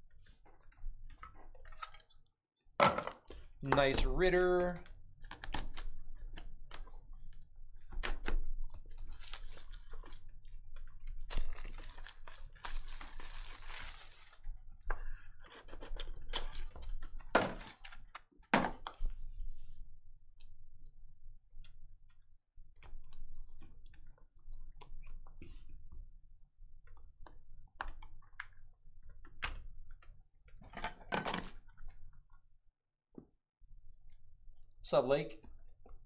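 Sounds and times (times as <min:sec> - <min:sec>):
plastic wrap crinkling: 0:08.6 - 0:14.5.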